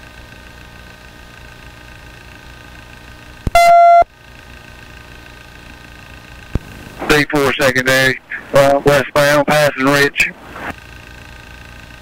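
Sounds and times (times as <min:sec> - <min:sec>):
loud steady beep: 0:03.5 - 0:04.1
radio channel hum and hiss: 0:04.9 - 0:12.0.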